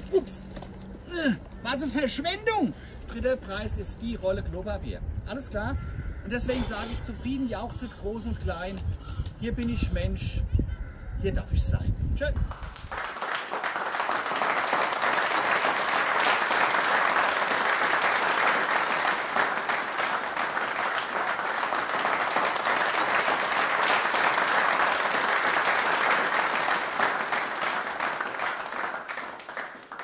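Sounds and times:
applause: 12.2 - 30.0.

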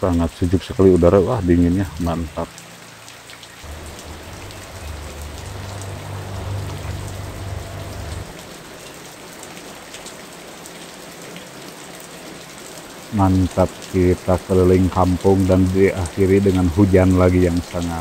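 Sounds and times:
heavy rain falling: 0.8 - 18.0
low rumble: 3.7 - 8.4.

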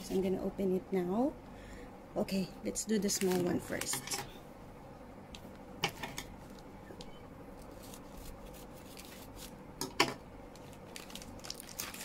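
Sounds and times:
plastic bag crinkling: 7.6 - 9.6, 10.5 - 12.0.

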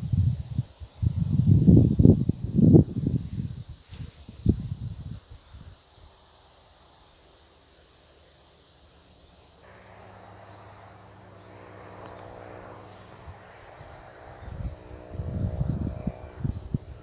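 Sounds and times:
high-pitched insect trill: 0.0 - 17.0
soft hiss: 3.0 - 16.3
low hum: 9.2 - 17.0.

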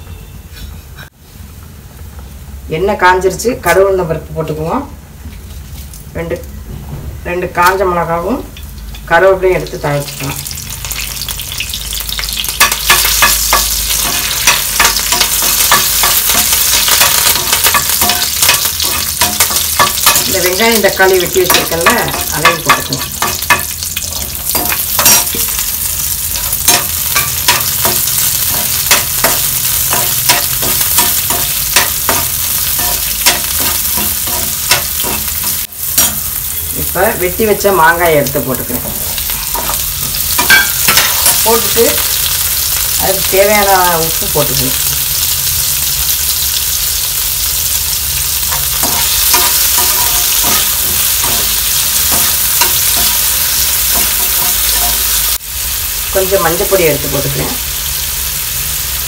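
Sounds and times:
onion and tomato sizzling in oil: 2.2 - 59.0
metal spoon scraping a pan: 12.6 - 20.7, 21.4 - 36.3, 39.2 - 42.1, 48.5 - 55.3.

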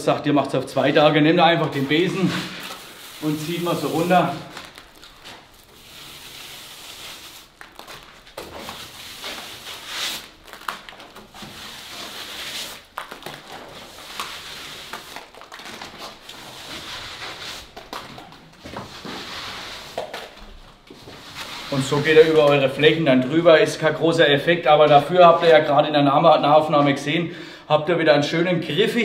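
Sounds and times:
broom scratching on mortar wall: 1.6 - 4.6, 5.6 - 7.6, 8.5 - 10.4, 11.4 - 12.9, 13.7 - 15.3, 21.0 - 22.5.

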